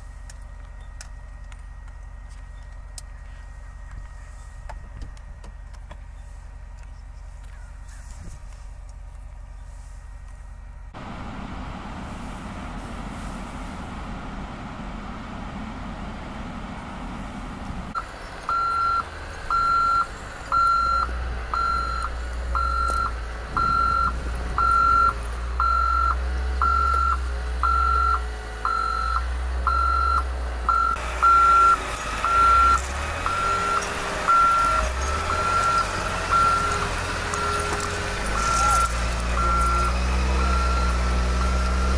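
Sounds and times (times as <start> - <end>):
wheel loader engine rumble: 0.0 - 41.9
reversing alarm beeping: 18.0 - 41.9.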